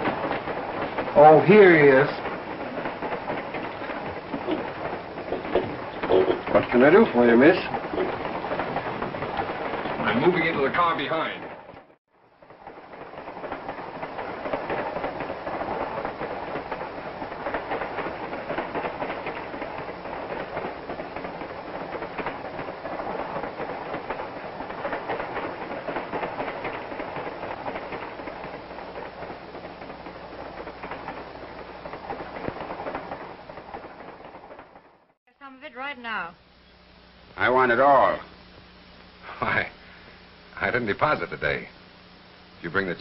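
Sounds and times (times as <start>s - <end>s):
wheels clattering over rail joints: 0.0s - 35.2s
train rumbling: 0.0s - 43.0s.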